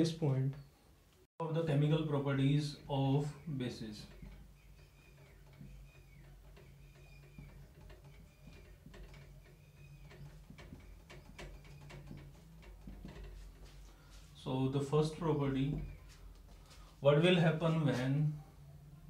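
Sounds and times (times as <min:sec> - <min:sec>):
marker squeaking on whiteboard: 0:03.4 - 0:14.3.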